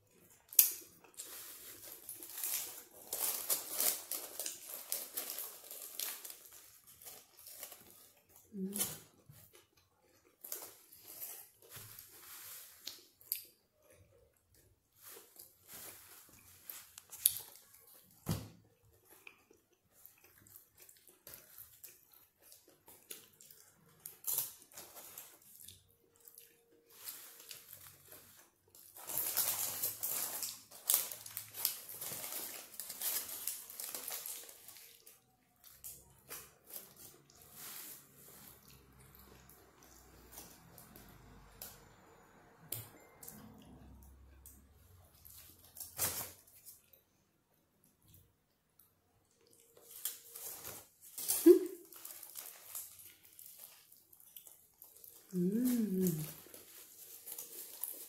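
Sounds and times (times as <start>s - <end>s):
chewing and biting food: 17.0s - 37.5s.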